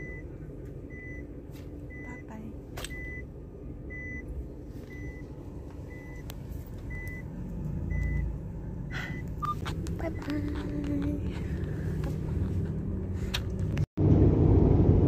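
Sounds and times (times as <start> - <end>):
reversing warning beeper: 0.0 - 0.3, 0.9 - 1.3, 2.9 - 3.3, 3.9 - 6.3, 6.9 - 10.3
low engine rumble: 0.0 - 15.0.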